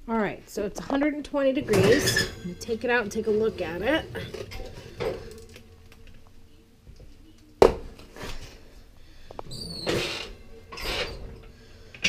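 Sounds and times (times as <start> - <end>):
metal rack and pan scraping: 1.6 - 5.8, 9.5 - 12.0
brief high squeak: 9.5 - 11.2.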